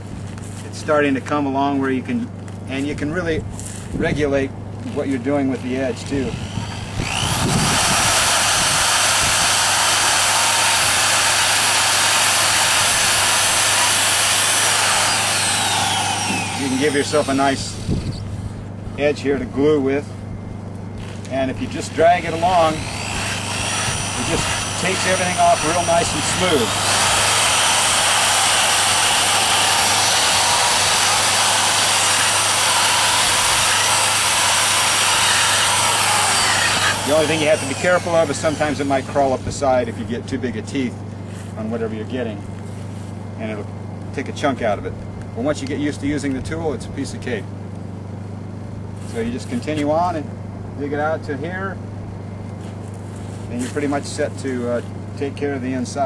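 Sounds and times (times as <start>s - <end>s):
bit grinding wood: 4.7s - 18.3s, 21.0s - 39.9s
rotary tool whining: 4.8s - 18.7s, 20.9s - 39.9s.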